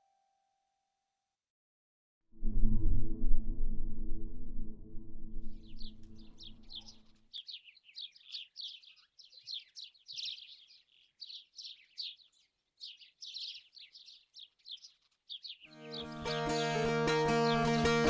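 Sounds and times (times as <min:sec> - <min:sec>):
songbird chirping: 0:05.4 - 0:18.0
background music: 0:15.7 - 0:18.0.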